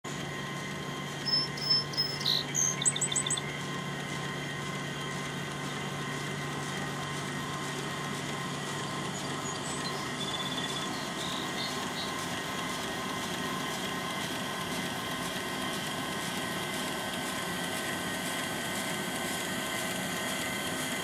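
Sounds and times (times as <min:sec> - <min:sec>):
steady hum: 0:00.1 - 0:16.4
songbird whistling: 0:01.2 - 0:03.5, 0:09.1 - 0:12.2.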